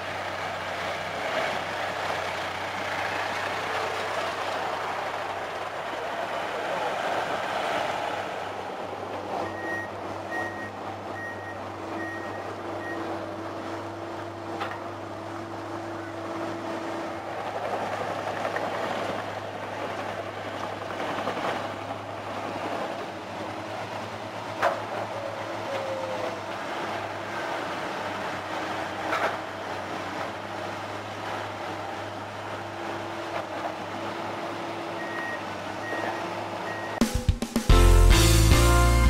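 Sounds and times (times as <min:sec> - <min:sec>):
diesel engines running: 0:00.0 - 0:39.0
reversing alarm beeping: 0:09.4 - 0:13.1, 0:35.0 - 0:37.0.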